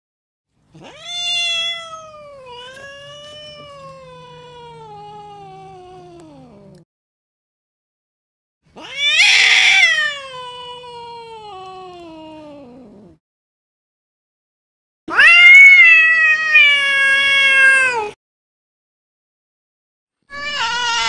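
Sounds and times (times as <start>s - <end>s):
cat meowing angrily: 0.8s - 5.7s, 8.8s - 11.1s, 15.1s - 18.2s, 20.3s - 21.0s.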